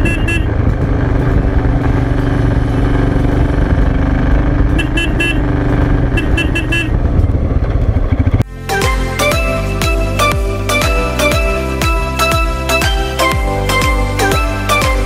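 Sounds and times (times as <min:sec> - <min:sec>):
motorcycle engine running: 0:00.0 - 0:15.0
wind rush: 0:05.4 - 0:08.5.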